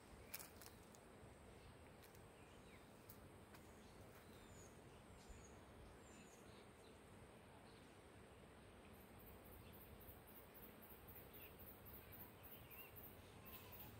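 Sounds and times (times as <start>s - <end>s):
faint bird chirps: 8.6s - 13.9s.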